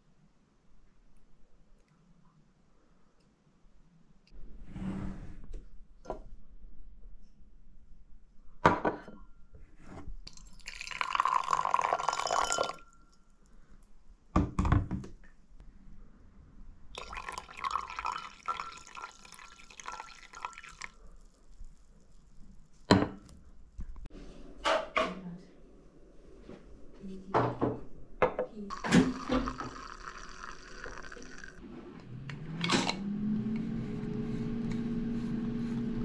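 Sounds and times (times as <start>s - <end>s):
liquid poured into a glass: 10.3s - 12.8s, 17.0s - 21.4s, 28.7s - 31.6s.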